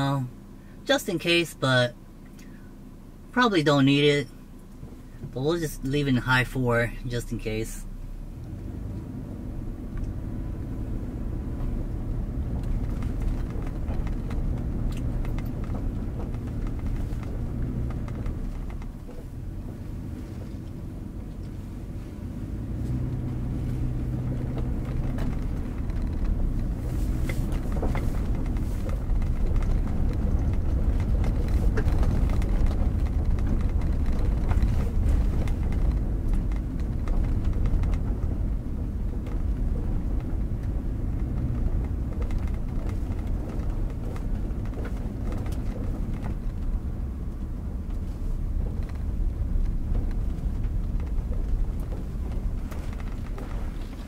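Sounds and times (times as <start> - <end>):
engine and tyre rumble: 0.0 - 54.0
sharp clicks and knocks: 11.6 - 21.6, 22.7 - 54.0.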